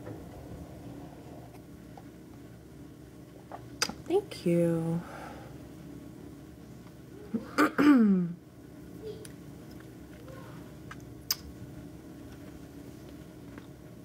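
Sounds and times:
woman burping: 0:07.4 - 0:08.4.

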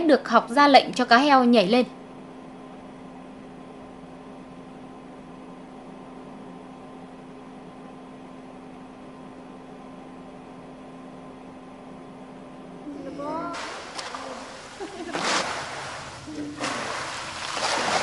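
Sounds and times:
steady low hum: 0:00.0 - 0:18.0
even hiss: 0:13.5 - 0:18.0.

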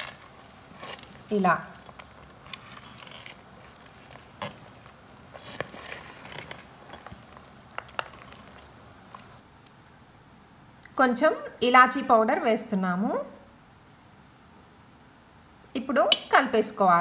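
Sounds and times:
wet dough mixing: 0:00.0 - 0:09.4.

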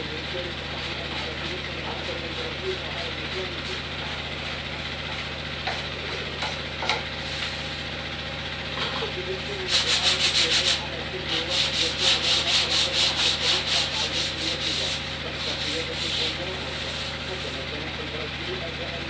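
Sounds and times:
sandpaper rubbing strokes on wood: 0:00.7 - 0:02.5, 0:03.3 - 0:05.3, 0:09.6 - 0:17.7.

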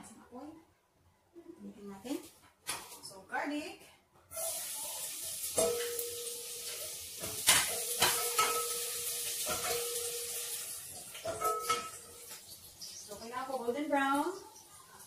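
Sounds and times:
garlic sizzling in oil: 0:04.3 - 0:15.0.

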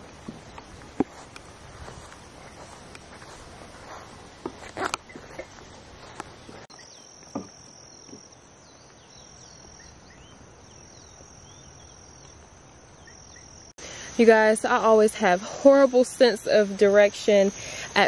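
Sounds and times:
high-pitched insect trill: 0:01.8 - 0:18.0
sharp knocks and thumps: 0:07.2 - 0:08.4.

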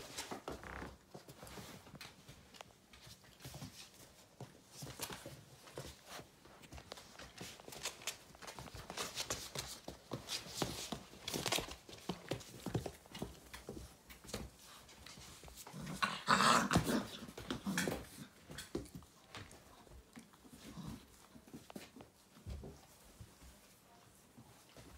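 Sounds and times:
puppies scuffling paws: 0:00.0 - 0:24.9
puppies growling: 0:15.5 - 0:18.4.

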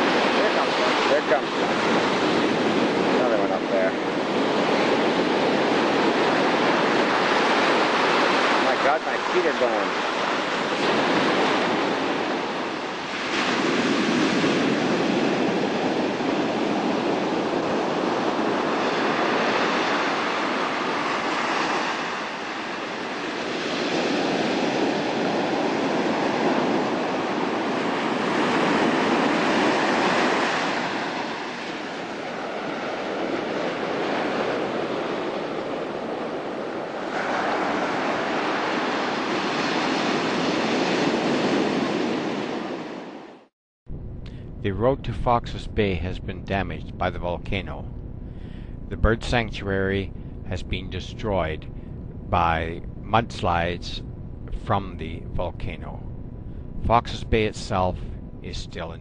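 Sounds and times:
ocean waves breaking: 0:00.0 - 0:43.5, 0:44.3 - 0:59.0.

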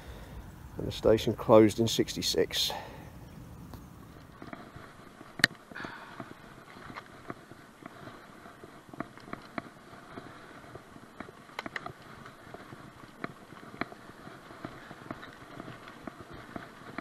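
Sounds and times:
bike rattling clicks and knocks: 0:04.2 - 0:17.0.

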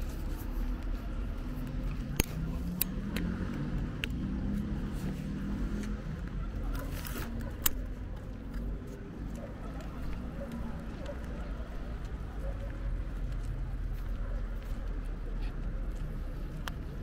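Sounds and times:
car traffic: 0:00.0 - 0:17.0
sharp clicks: 0:07.3 - 0:08.0.

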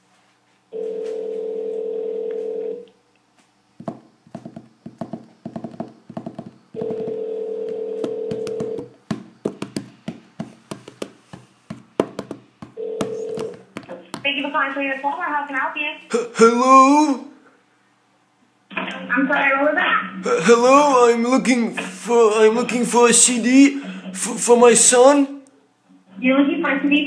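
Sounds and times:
telephone ringback tone: 0:00.8 - 0:02.8, 0:06.8 - 0:08.9, 0:12.8 - 0:13.6.

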